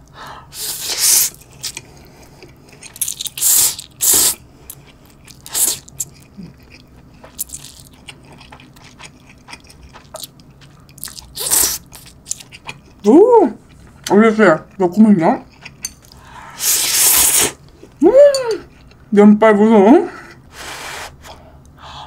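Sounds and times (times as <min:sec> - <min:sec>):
person slurping noodles: 0:00.5 - 0:01.4, 0:16.6 - 0:17.6
person chewing: 0:00.6 - 0:14.1, 0:15.5 - 0:18.0.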